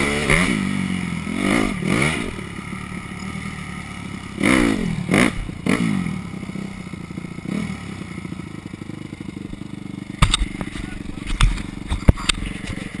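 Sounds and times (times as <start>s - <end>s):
dirt bike engine running: 0.0s - 13.0s
sharp knocks and clatters: 10.2s - 13.0s.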